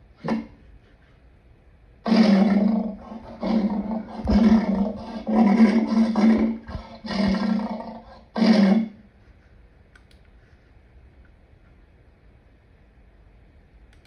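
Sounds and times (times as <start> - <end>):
lion roaring: 2.0 - 9.0.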